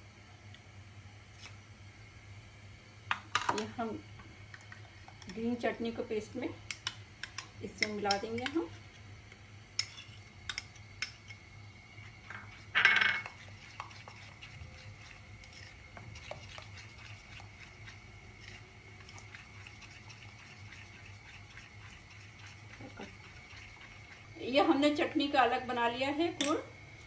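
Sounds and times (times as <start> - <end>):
spoon stirring in glass bowl: 9.8 - 24.4.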